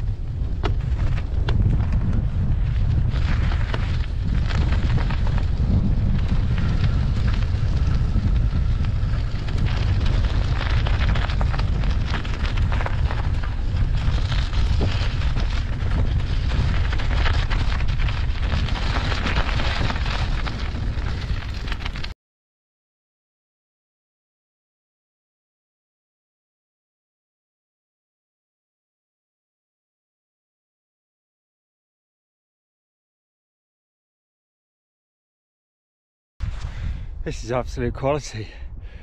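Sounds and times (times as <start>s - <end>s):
bicycle tyres crunching on snow: 0.0s - 22.2s, 36.4s - 39.0s
wind noise on microphone: 0.0s - 22.2s, 36.4s - 39.0s.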